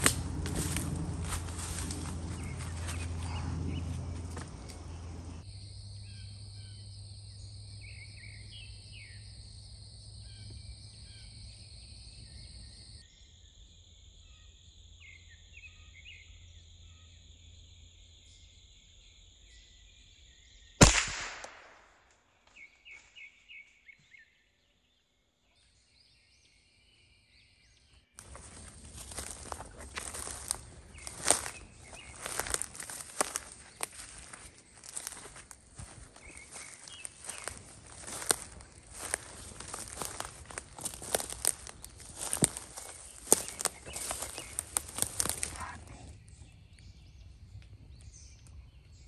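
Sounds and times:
bird chirps: 0:00.2 - 0:05.4, 0:22.5 - 0:49.0
gunshot: 0:20.8 - 0:22.0.

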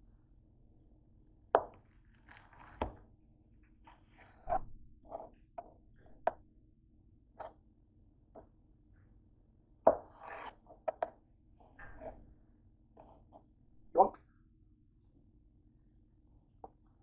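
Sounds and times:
bread crunching: 0:01.8 - 0:03.0.

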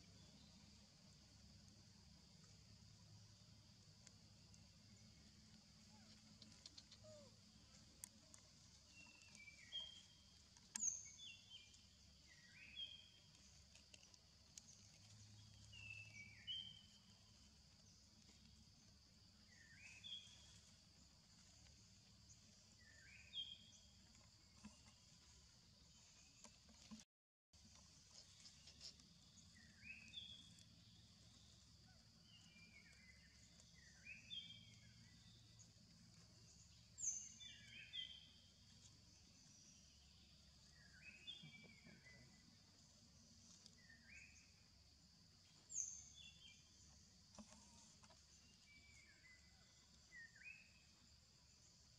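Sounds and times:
insect hiss: 0:00.0 - 0:27.0, 0:27.6 - 0:51.9
birds chirping: 0:04.8 - 0:18.4.

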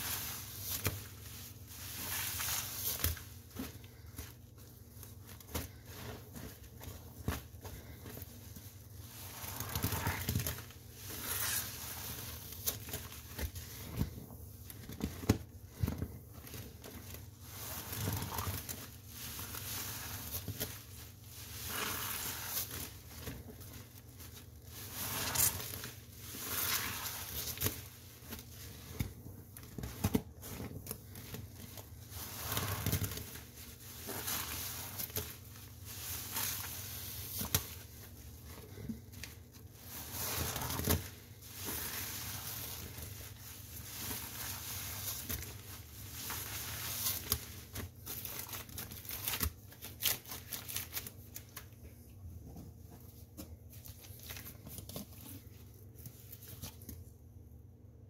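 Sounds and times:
wet sponge being squeezed: 0:00.0 - 0:04.1, 0:08.6 - 0:13.2, 0:17.5 - 0:20.5, 0:21.2 - 0:22.9, 0:24.7 - 0:29.0, 0:32.0 - 0:37.9.

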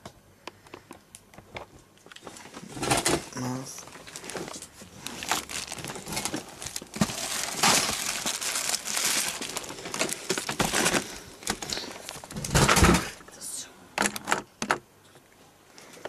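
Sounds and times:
plastic bags crinkling: 0:01.5 - 0:13.2.

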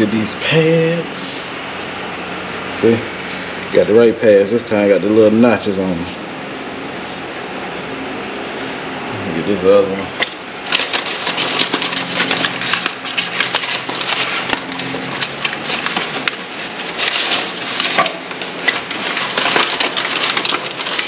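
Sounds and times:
rummaging through cardboard packaging: 0:10.2 - 0:21.0.

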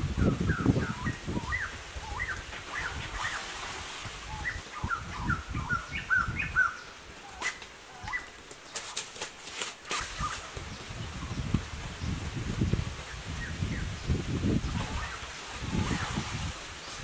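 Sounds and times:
birds chirping: 0:00.2 - 0:03.6, 0:04.3 - 0:09.1.

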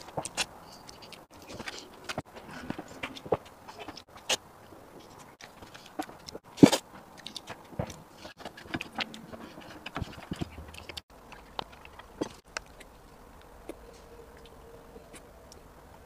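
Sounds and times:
wet mouth eating sounds: 0:05.0 - 0:15.6.

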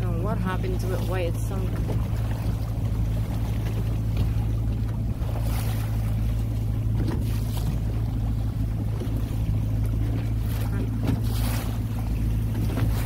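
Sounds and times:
boat engine humming: 0:00.0 - 0:13.0
water noise: 0:00.0 - 0:13.0.

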